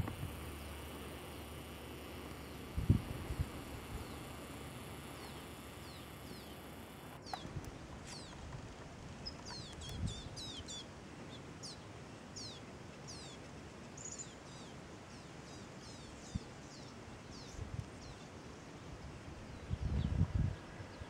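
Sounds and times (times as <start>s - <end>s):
goldfinches calling: 0.0s - 8.4s.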